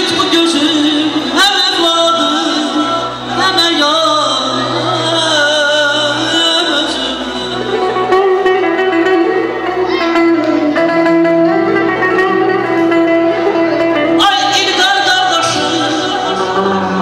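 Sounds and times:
man singing through a microphone: 0.0s - 8.9s, 14.0s - 17.0s
amplified electric guitar: 0.0s - 17.0s
backing instruments: 0.0s - 17.0s.

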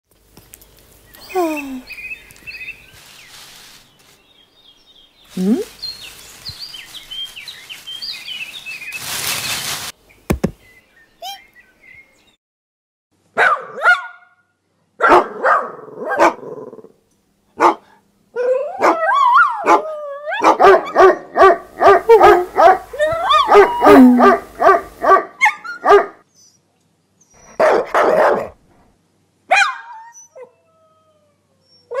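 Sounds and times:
small dogs barking and yapping: 13.4s - 14.2s, 15.0s - 16.6s, 17.6s - 26.2s, 27.4s - 28.6s, 29.5s - 30.6s, 31.8s - 32.0s
dog whimpers: 22.1s - 24.5s.

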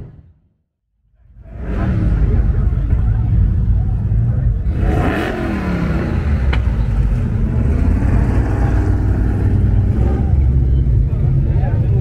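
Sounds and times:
car engines rumbling past: 1.2s - 12.0s.

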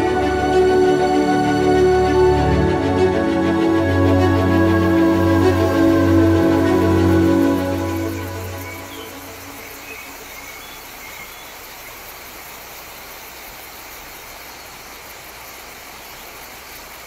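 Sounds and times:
background music: 0.0s - 10.0s
insect chorus: 0.0s - 17.0s
steady hiss: 0.0s - 17.0s
faint bird chirps: 8.4s - 12.2s.

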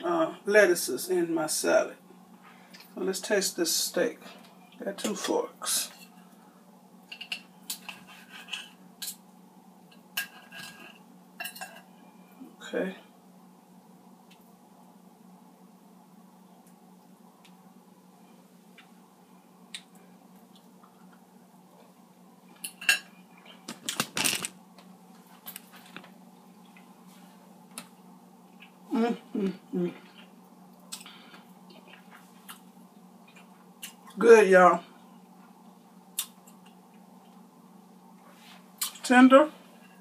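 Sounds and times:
forks scraping a ceramic plate: 7.8s - 8.8s.

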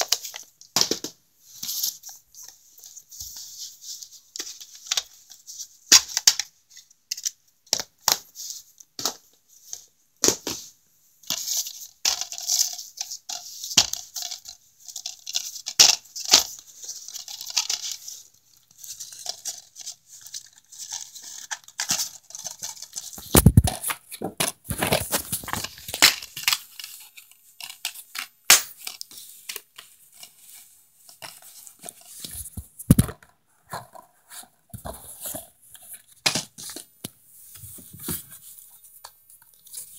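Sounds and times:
plastic cases clicking and rustling: 19.0s - 29.9s.

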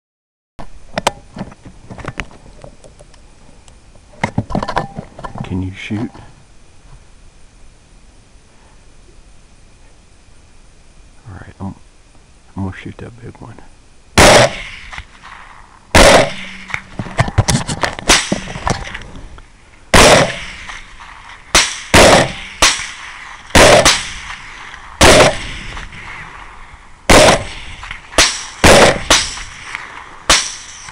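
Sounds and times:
rifle shots: 14.2s - 19.0s, 19.9s - 30.9s.

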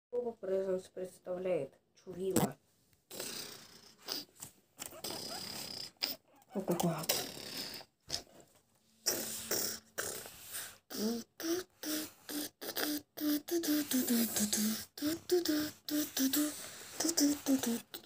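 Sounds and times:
person vocalising a tune: 9.0s - 18.0s
person beatboxing: 9.1s - 18.0s.

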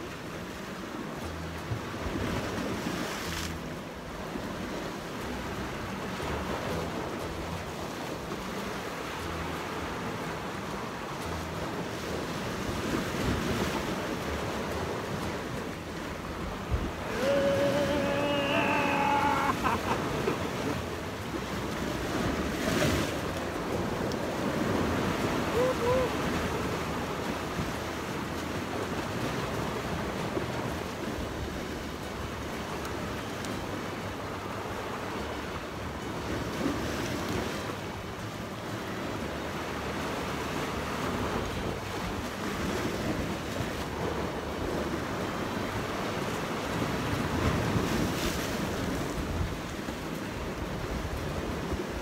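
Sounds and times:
surf washing against rocks: 0.0s - 52.0s
wave breaking and splashing: 0.0s - 52.0s
wind gusting on microphone: 5.2s - 38.2s.

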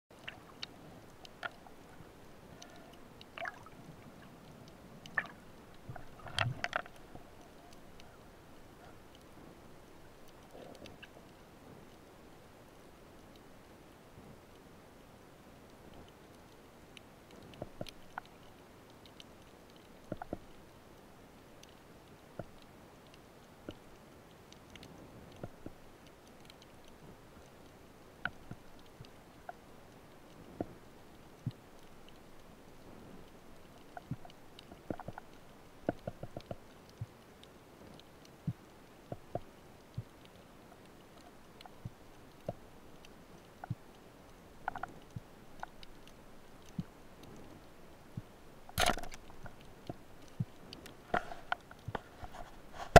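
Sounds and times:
underwater clicks and pops: 0.2s - 8.1s, 33.7s - 37.2s, 44.6s - 52.9s
faint underwater hiss: 0.2s - 52.9s.

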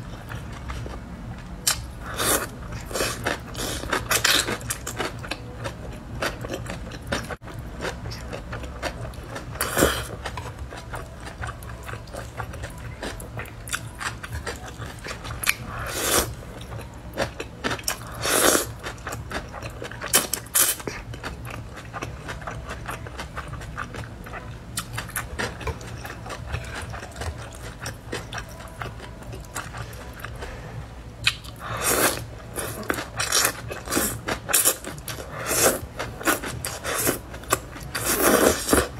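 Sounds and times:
person chewing noodles: 1.6s - 30.5s, 31.2s - 38.9s
slurping: 37.9s - 38.9s.

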